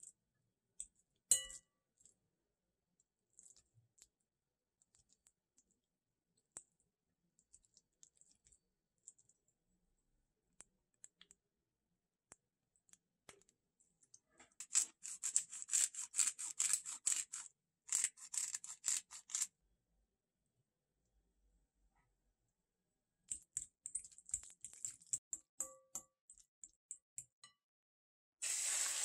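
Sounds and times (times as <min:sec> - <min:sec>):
fork and spoon clicking on glass bowl: 0:01.3 - 0:01.6
pepper grinder grinding: 0:14.6 - 0:19.5.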